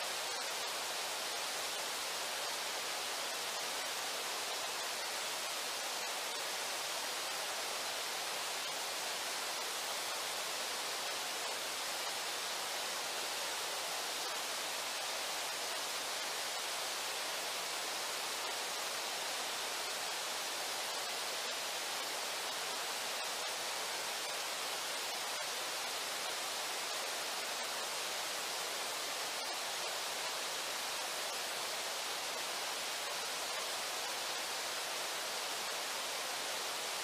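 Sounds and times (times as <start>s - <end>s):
river water rushing: 0.0s - 37.0s.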